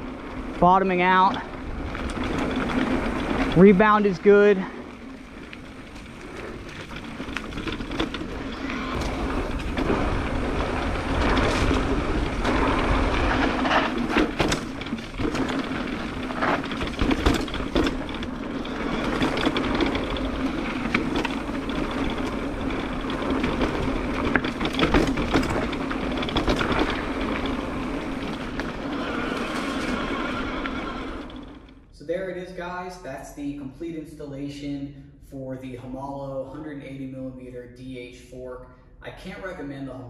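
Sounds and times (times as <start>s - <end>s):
bike knocks and rattles: 0.0s - 31.8s
tyres rushing on dirt: 0.0s - 31.8s.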